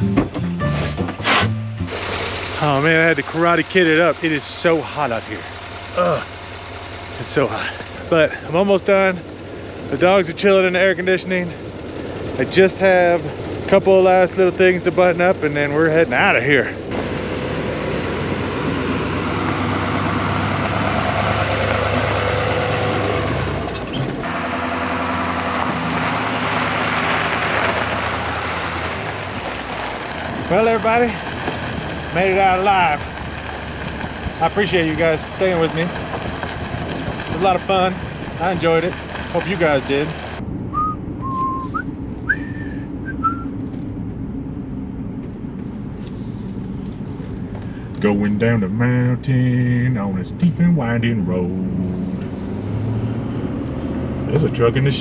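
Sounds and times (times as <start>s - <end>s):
tires on gravel track: 0.0s - 55.0s
truck engine running: 0.0s - 55.0s
whistle-like notes: 40.7s - 43.6s.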